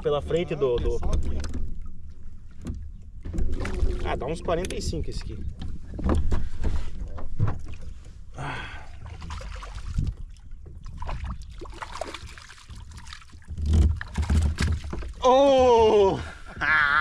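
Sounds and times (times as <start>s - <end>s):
water sounds: 0.0s - 17.0s
wind rumble on microphone: 9.4s - 11.7s.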